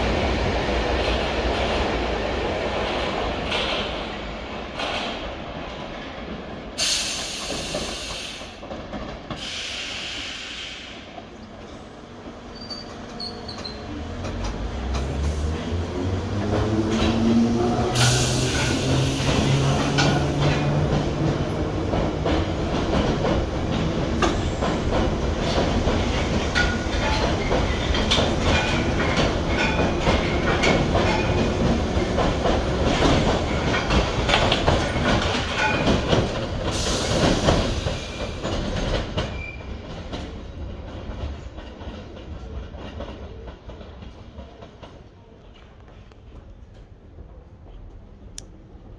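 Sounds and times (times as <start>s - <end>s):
train wheels clattering over rails: 0.0s - 11.8s, 12.5s - 47.0s
short bursts of hiss: 9.4s - 11.0s.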